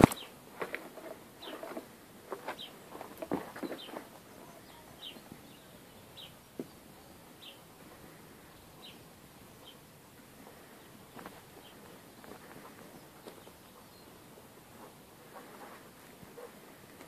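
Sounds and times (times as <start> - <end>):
leaves rustling against camera: 0.0 - 17.0
small bird high chirps: 3.7 - 6.4.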